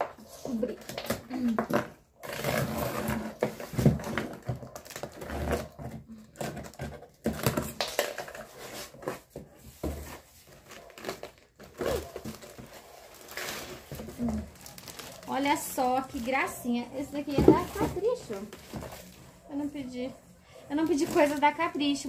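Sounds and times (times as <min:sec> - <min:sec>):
plastic wrapping rustling: 0:00.0 - 0:19.8, 0:20.6 - 0:22.0
packing tape peeling: 0:10.5 - 0:15.4.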